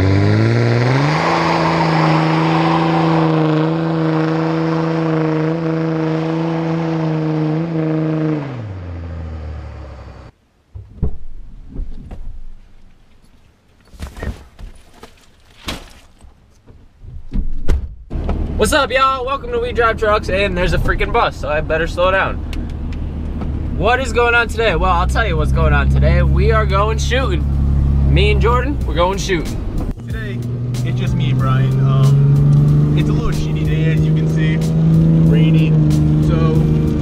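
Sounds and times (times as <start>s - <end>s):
diesel pickup engine revving: 0.0s - 10.3s, 18.1s - 37.0s.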